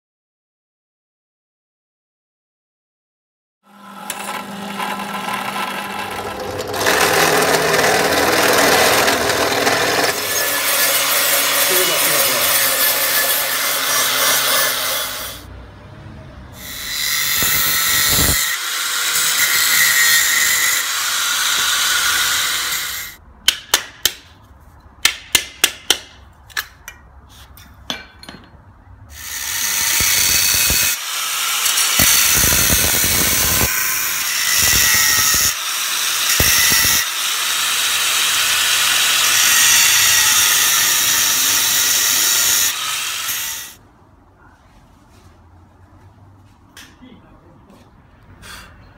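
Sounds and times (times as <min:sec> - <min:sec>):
angle grinder cutting steel: 0:03.7 - 0:15.5, 0:16.6 - 0:23.2, 0:29.1 - 0:43.8
drill press motor whining: 0:03.8 - 0:10.1.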